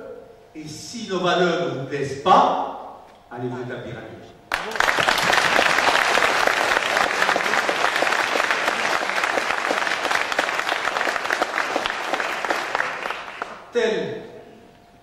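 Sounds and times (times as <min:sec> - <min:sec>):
audience applauding: 0:04.5 - 0:13.7.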